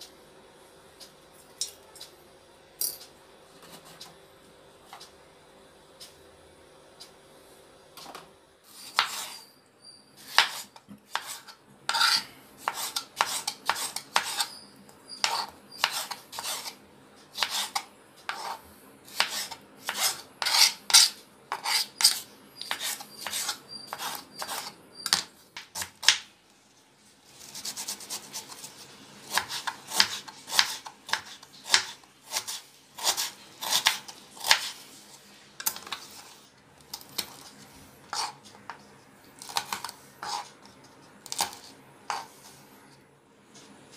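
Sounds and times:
knife chopping on wooden board: 8.9 - 9.3, 10.3 - 14.4, 17.4 - 26.3, 29.3 - 34.8.

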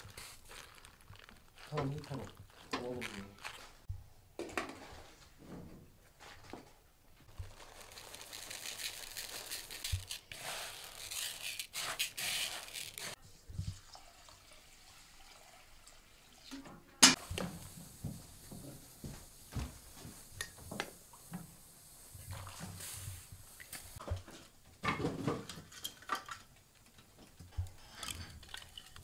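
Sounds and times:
dry grains stirred in plastic bowl: 0.0 - 3.7, 7.3 - 13.2.

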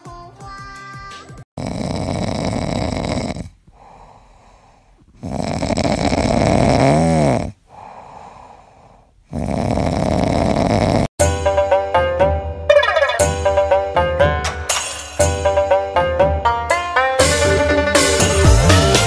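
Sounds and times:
puppy snoring: 1.6 - 4.0, 5.0 - 7.8, 9.2 - 11.1.

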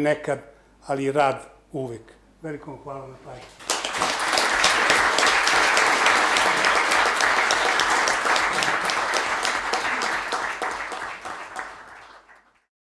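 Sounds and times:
audience applauding: 3.6 - 12.7.

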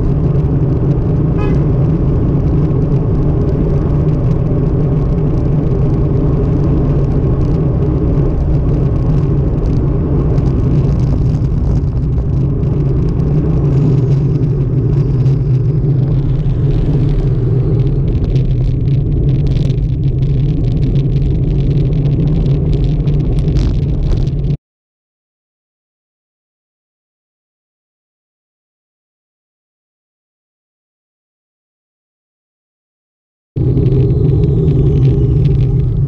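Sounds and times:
wind buffeting and road noise: 0.0 - 24.6, 33.6 - 36.0.

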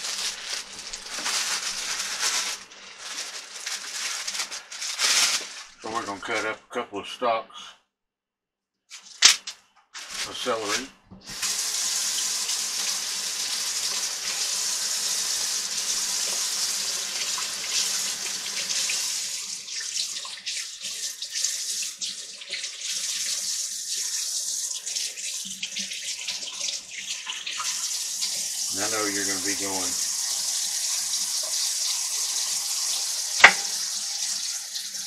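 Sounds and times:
water spattering over celery: 0.0 - 5.8, 19.7 - 34.8
faucet water running into sink: 11.2 - 35.0.

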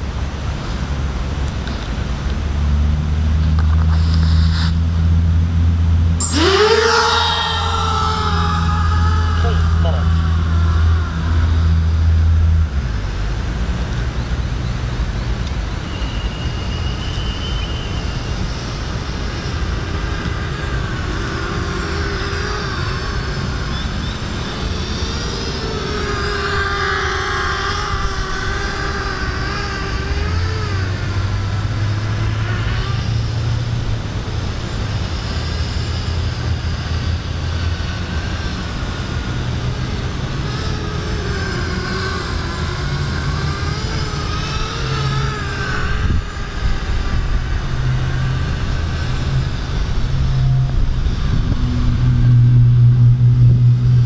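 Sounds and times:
low rumble: 0.0 - 54.0
quadcopter motors whining: 0.0 - 54.0.

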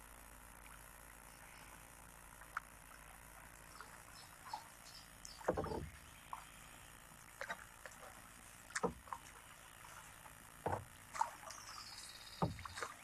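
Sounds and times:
paddle splashing water: 2.4 - 13.0
paddle knocking on hull: 5.4 - 6.0, 8.8 - 9.4, 10.6 - 11.4, 12.3 - 13.0.

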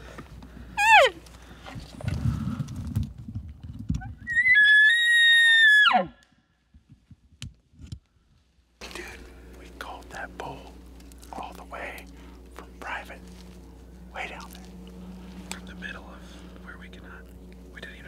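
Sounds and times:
bull elk bugle: 0.8 - 1.2
elk cow call: 0.8 - 1.2.

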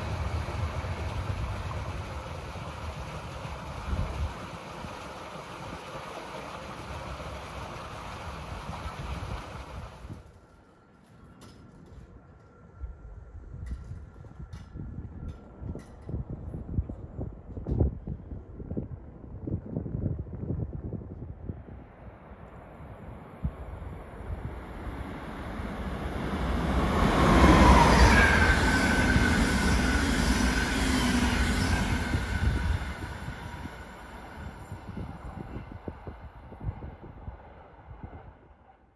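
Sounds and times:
train whining tones: 0.0 - 4.3, 24.3 - 36.2
railway platform ambience: 0.0 - 38.9.

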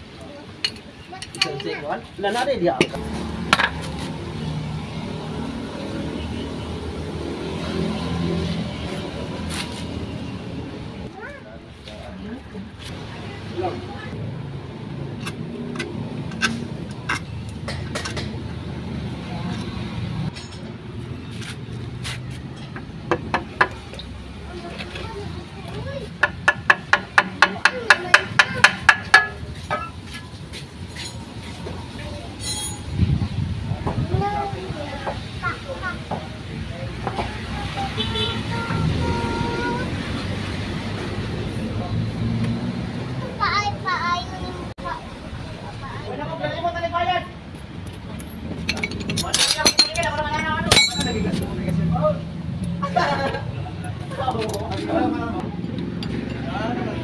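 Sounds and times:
sharp metal tapping: 26.2 - 29.9
sharp metallic clink: 32.4 - 32.9, 48.7 - 51.4.

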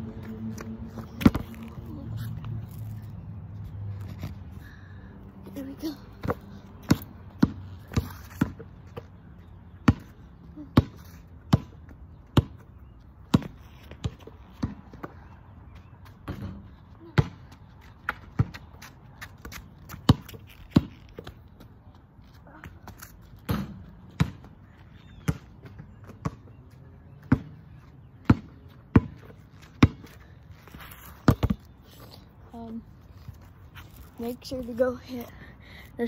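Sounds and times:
basketball bouncing on asphalt: 0.0 - 2.0, 5.5 - 32.8.

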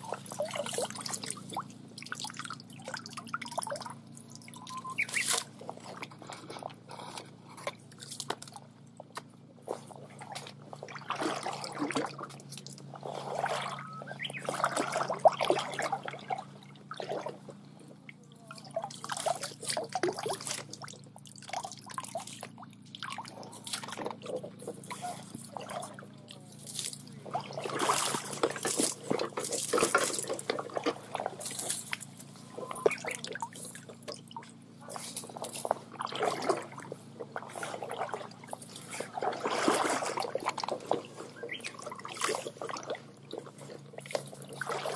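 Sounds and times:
net splashing in water: 10.2 - 17.4, 18.6 - 44.9.

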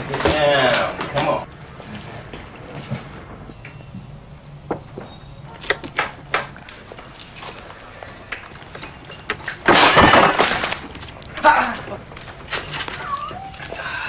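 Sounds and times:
keys rattling in door lock: 6.7 - 9.8, 10.9 - 13.8.

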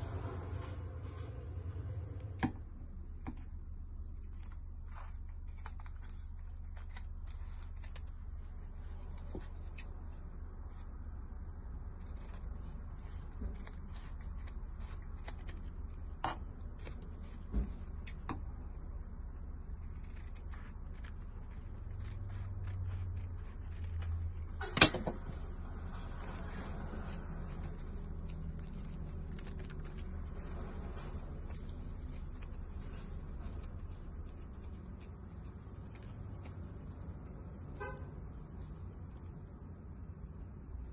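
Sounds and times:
steady low hum: 0.0 - 40.9
scissors snipping fabric: 4.2 - 10.8, 11.8 - 37.7.

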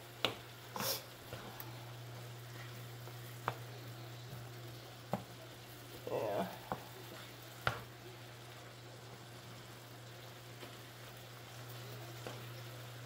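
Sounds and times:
meat sizzling in a frying pan: 0.0 - 13.0
wooden spoon knocking on pan: 7.6 - 7.9.

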